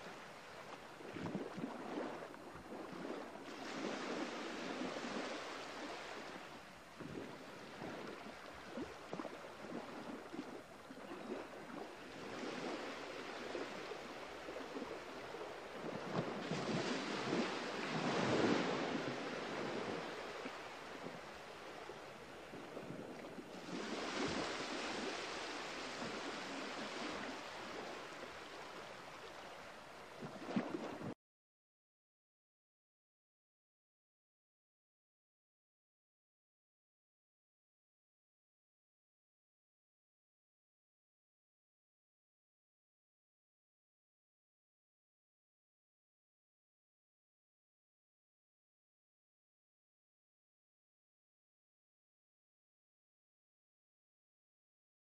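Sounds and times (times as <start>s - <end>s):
waves washing on shore: 0.0s - 31.2s.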